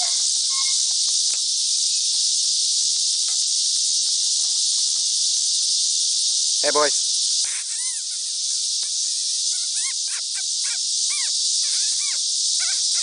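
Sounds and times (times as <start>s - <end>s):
puppies whining: 0.0s - 0.9s, 8.9s - 13.0s
high insect drone: 0.0s - 13.0s.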